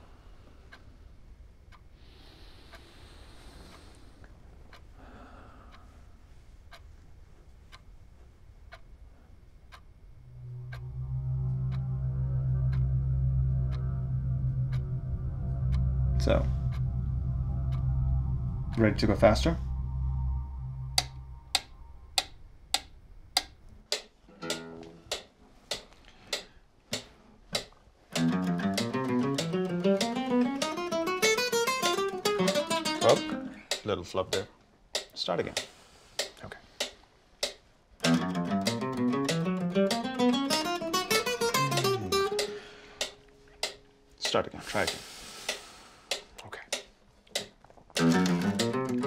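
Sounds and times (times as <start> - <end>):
clock ticking: 0.7 - 2.0, 3.7 - 5.1, 6.6 - 7.0, 7.6 - 49.0
low droning music: 10.0 - 23.7, 28.1 - 33.6, 38.0 - 44.1, 48.0 - 49.0
acoustic guitar plucked notes: 10.3 - 21.7, 28.1 - 33.6, 38.0 - 44.0, 48.0 - 49.0.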